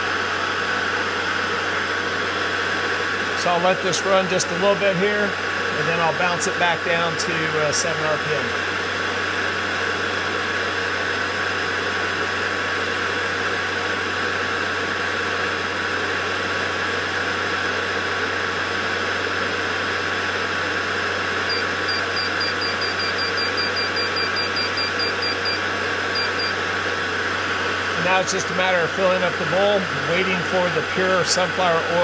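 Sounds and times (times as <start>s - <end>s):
short high beeps: 21.5s - 26.6s.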